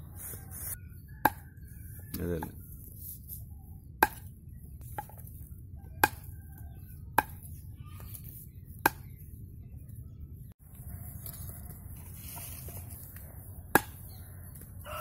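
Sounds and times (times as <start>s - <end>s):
knife chopping on wooden log: 1.2s - 1.4s, 4.0s - 5.2s, 6.0s - 6.3s, 7.1s - 7.5s, 13.7s - 14.1s.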